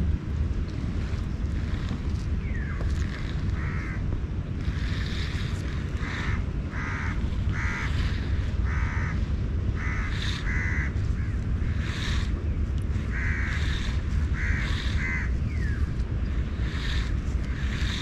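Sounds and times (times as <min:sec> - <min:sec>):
wind rumble on microphone: 0:00.0 - 0:18.0
bird calling: 0:01.6 - 0:18.0.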